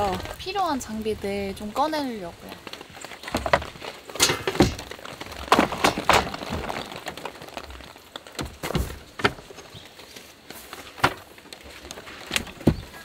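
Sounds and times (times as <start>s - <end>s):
wooden boards knocking and clattering: 2.6s - 13.0s.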